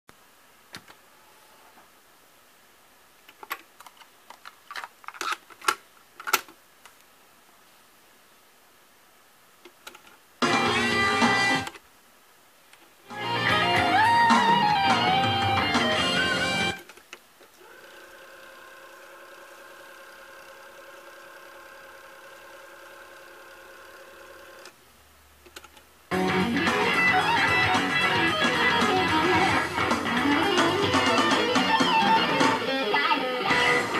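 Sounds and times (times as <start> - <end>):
cassette deck plastic clacks: 3.3 - 7.0
cassette deck motor whir: 10.4 - 11.8, 13.1 - 16.9, 17.6 - 24.8.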